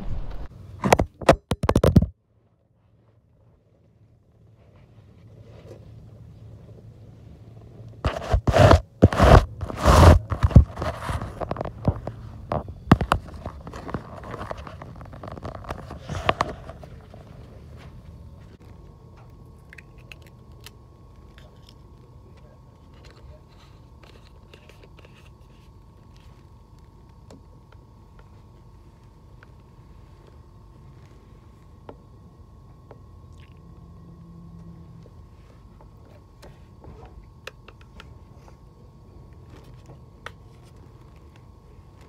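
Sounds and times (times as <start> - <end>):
rustling scrapes on microphone: 0.0 - 0.5, 8.1 - 17.4
train carriage hum: 0.0 - 0.7.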